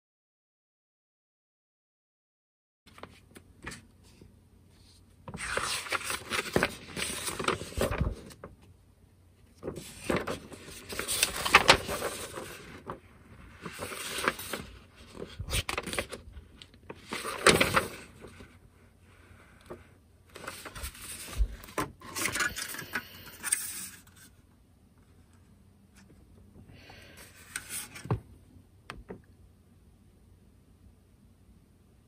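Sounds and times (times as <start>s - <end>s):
paper pages rustling: 2.9s - 8.7s, 9.5s - 18.6s, 19.2s - 24.4s, 27.2s - 28.3s.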